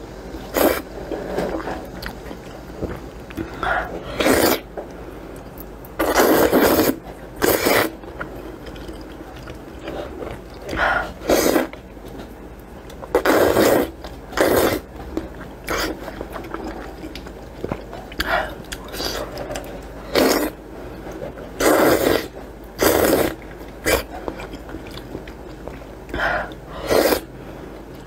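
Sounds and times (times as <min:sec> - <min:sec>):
person slurping noodles: 0:00.5 - 0:01.8, 0:02.9 - 0:04.7, 0:06.0 - 0:08.1, 0:09.8 - 0:11.8, 0:13.1 - 0:14.9, 0:15.7 - 0:17.0, 0:20.0 - 0:20.6, 0:21.6 - 0:24.6, 0:26.1 - 0:27.3.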